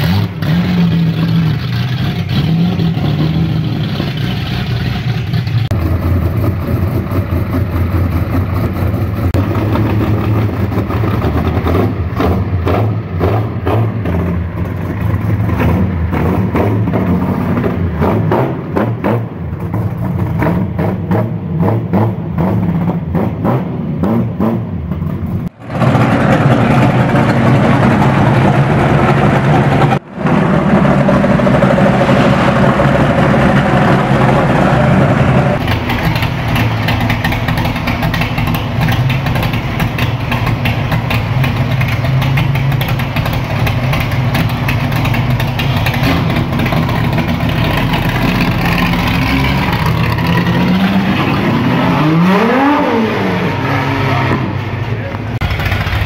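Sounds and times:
car engine idling unevenly: 0.0s - 12.6s, 30.7s - 52.8s, 54.8s - 56.0s
car engine pulling away: 0.0s - 56.0s
car engine revving loudly: 20.3s - 24.8s, 25.5s - 56.0s.

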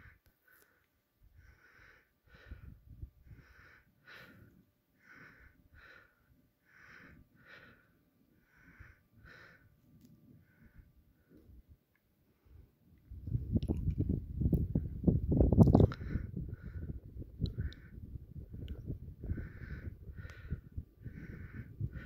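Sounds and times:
faint breathing: 0.0s - 12.8s, 15.9s - 22.0s.

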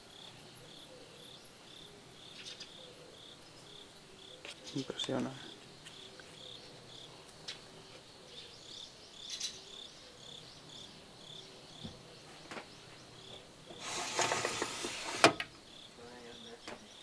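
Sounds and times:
insects chirping: 0.0s - 17.0s
rustling scrape: 13.8s - 15.4s.

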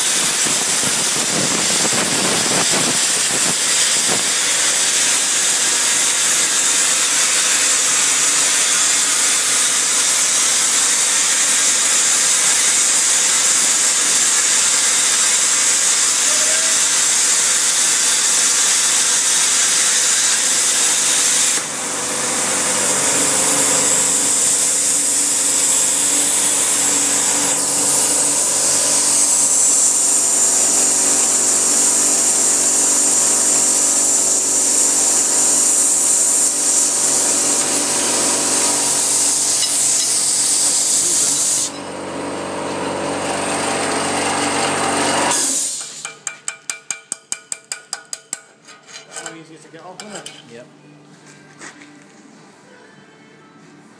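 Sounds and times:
plasma torch hissing: 0.0s - 41.8s, 45.2s - 46.1s
steady hum: 21.0s - 40.1s.

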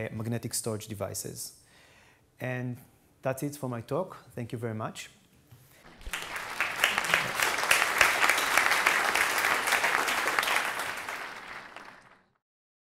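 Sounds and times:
audience applauding: 5.8s - 12.4s.

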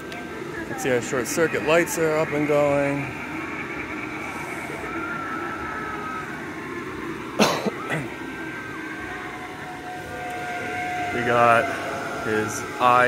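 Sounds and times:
blower fan whirring: 0.0s - 13.0s
person coughing: 7.4s - 8.1s.

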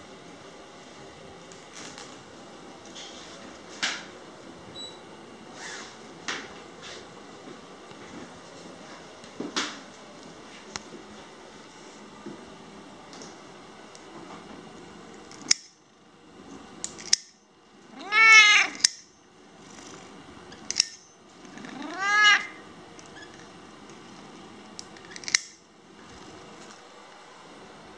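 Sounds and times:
nail clipper snipping claws: 15.3s - 15.8s, 16.8s - 17.4s, 18.8s - 19.1s, 20.7s - 21.0s, 24.8s - 25.6s
cat meowing: 17.9s - 18.8s, 21.6s - 22.6s.

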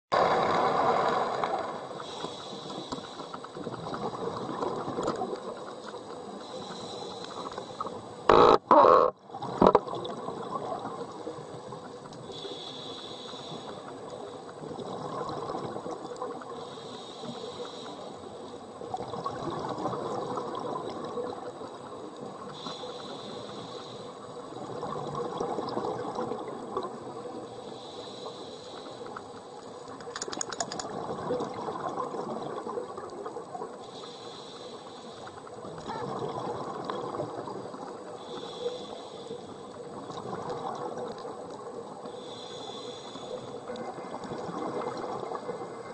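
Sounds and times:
regulator breathing hiss: 2.0s - 3.6s, 6.4s - 8.2s, 12.3s - 14.3s, 16.5s - 18.5s, 22.4s - 24.3s, 27.5s - 29.3s, 33.8s - 35.6s, 38.2s - 39.7s, 42.0s - 43.6s
exhaled bubbles rushing: 18.9s - 21.5s, 30.6s - 33.0s, 44.0s - 45.7s
sharp clicks: 29.9s - 31.0s.

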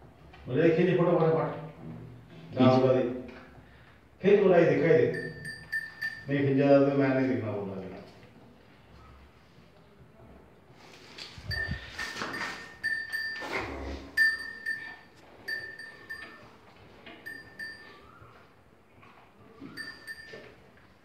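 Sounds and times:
cowbell clinking: 5.1s - 6.4s, 11.5s - 18.2s, 19.6s - 20.6s.

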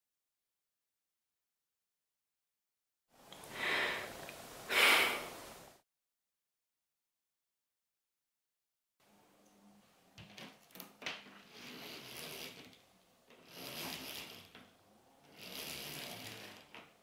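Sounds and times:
roller blind clicks: 10.5s - 14.7s, 15.3s - 17.0s
roller blind rattling up: 11.4s - 14.6s, 15.2s - 16.9s.

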